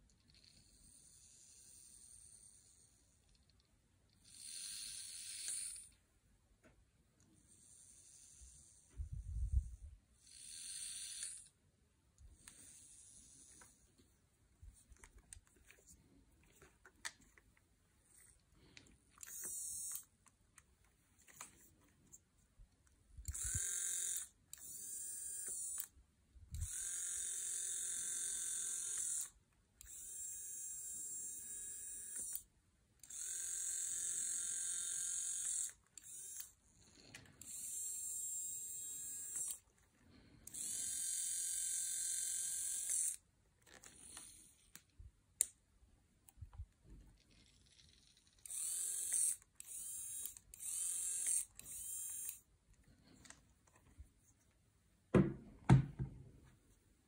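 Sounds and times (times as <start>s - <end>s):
small electric motor whirring: 0.2s - 6.0s, 7.4s - 11.6s, 12.3s - 13.9s, 18.6s - 20.1s, 23.2s - 39.7s, 40.4s - 44.8s, 47.2s - 53.2s.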